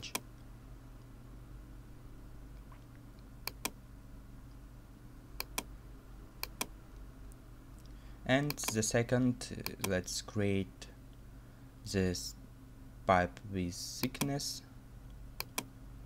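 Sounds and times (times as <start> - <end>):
low steady hum: 0.0 - 16.0
computer mouse clicking: 2.8 - 3.8, 5.4 - 5.7, 6.4 - 6.7, 8.4 - 8.8, 15.4 - 15.7.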